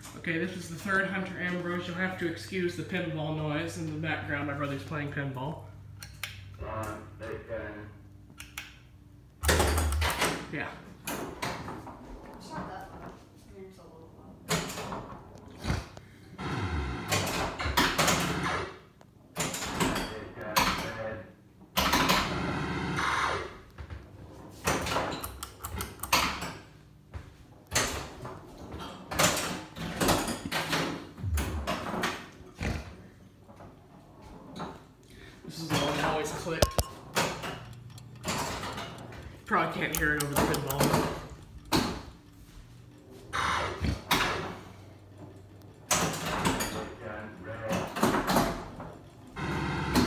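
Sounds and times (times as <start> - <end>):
ceiling fan humming: 0.0 - 50.0
pinball mechanical banging: 35.7 - 50.0.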